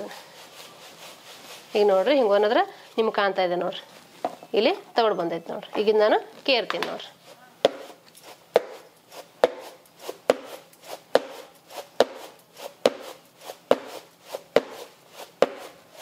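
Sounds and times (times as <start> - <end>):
grains rattling: 0.0 - 3.1.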